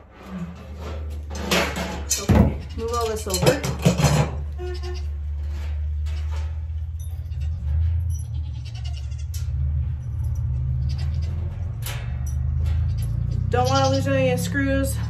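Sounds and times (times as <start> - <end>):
goats bleating: 4.5 - 5.4, 8.4 - 9.5.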